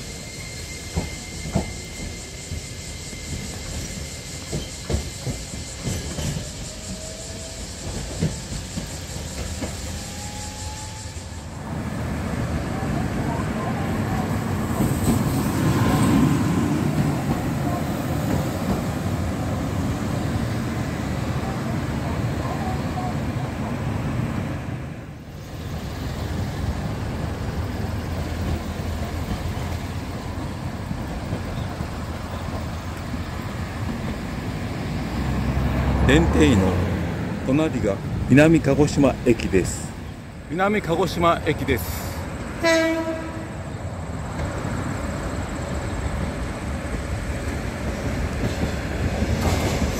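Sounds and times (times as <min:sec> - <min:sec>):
tram rumbling on rails: 0:00.0 - 0:49.9
road traffic: 0:06.5 - 0:49.9.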